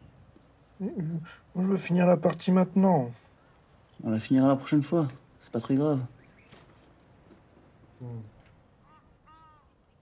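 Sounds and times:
faint soft rustle: 0:03.1 - 0:08.8.

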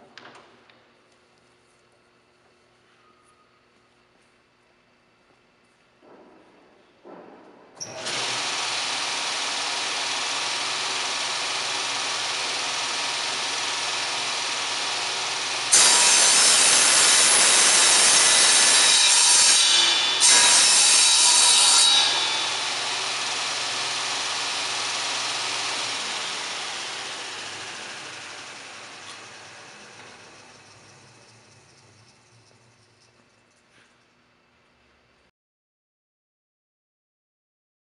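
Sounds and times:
table saw blade running: 0:07.8 - 0:33.1
saw cutting wooden board: 0:07.9 - 0:32.4.

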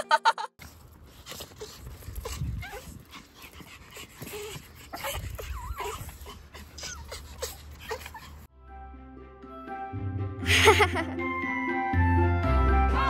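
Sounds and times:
small dogs whining and yipping: 0:01.1 - 0:08.5.

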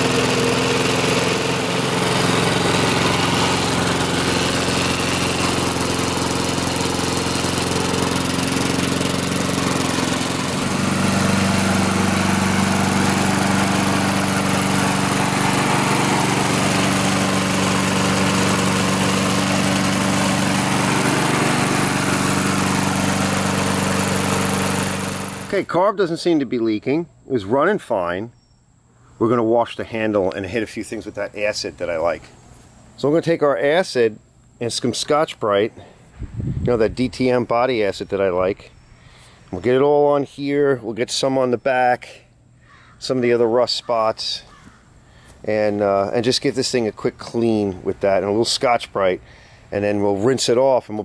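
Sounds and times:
lawn mower engine running: 0:00.0 - 0:25.9.

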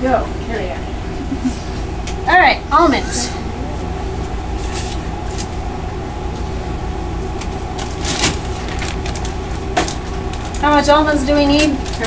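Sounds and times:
steady low hum: 0:00.0 - 0:12.0
plastic bag crinkling: 0:07.7 - 0:12.0.

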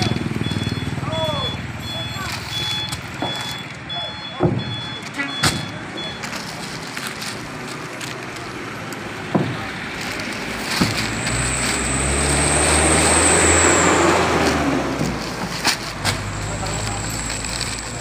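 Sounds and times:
vehicle engine rumble: 0:00.0 - 0:18.0
heavy sacks set down: 0:09.5 - 0:12.5.

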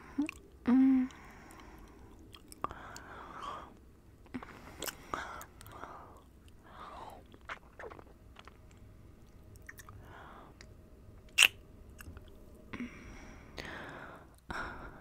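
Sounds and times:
soft breaths: 0:00.0 - 0:07.4, 0:09.9 - 0:10.9, 0:12.5 - 0:15.0
lip smacks and clicks: 0:01.5 - 0:03.1, 0:06.4 - 0:08.9, 0:11.3 - 0:12.2.

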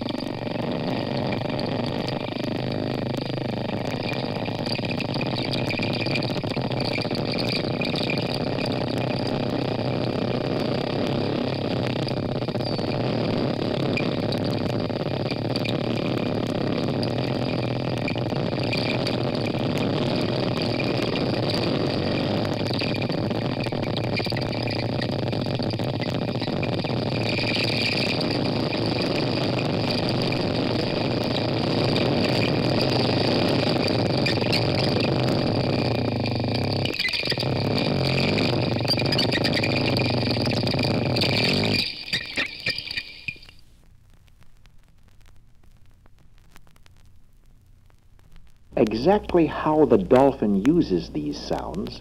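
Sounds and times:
rumbling underwater background noise: 0:00.0 - 0:52.0.

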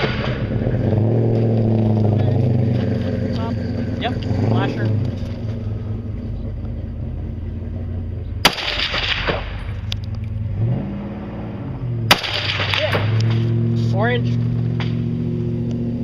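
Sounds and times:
steady low hum: 0:00.0 - 0:16.0
rifle shots with echo: 0:08.4 - 0:09.8, 0:12.1 - 0:13.4.

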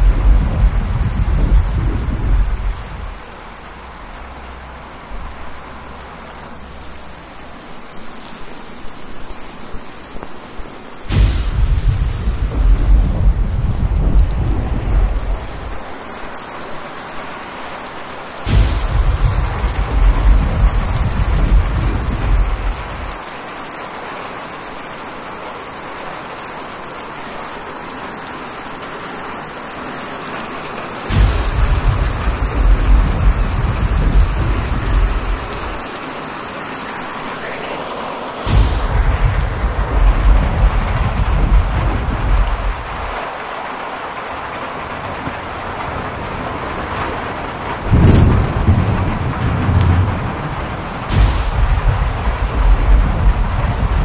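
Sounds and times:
thunderclaps with deep rumble: 0:00.0 - 0:03.7, 0:11.1 - 0:15.8, 0:18.4 - 0:23.2, 0:31.1 - 0:35.8, 0:38.5 - 0:43.3, 0:44.9 - 0:54.0
heavy rain: 0:00.0 - 0:54.0.

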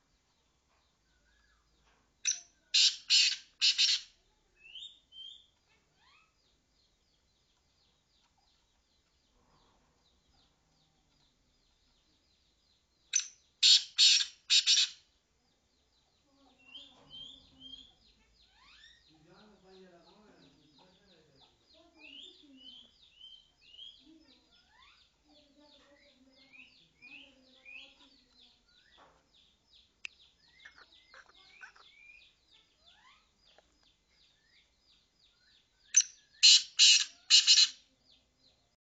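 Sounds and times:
francolin harsh calls: 0:02.3 - 0:05.4, 0:13.2 - 0:15.0, 0:35.4 - 0:37.9.

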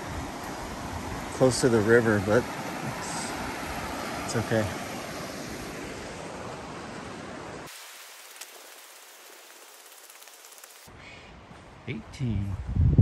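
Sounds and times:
river rapids rushing: 0:00.0 - 0:10.9
thin hiss: 0:07.7 - 0:10.9.

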